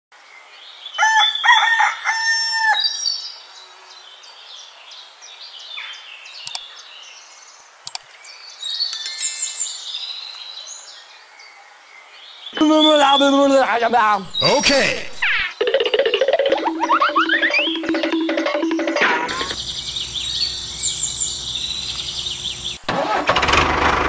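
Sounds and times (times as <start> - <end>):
rooster crowing: 1.0 - 2.9
small birds chirping: 2.9 - 22.9
short clicks: 6.4 - 6.6, 7.8 - 8.1.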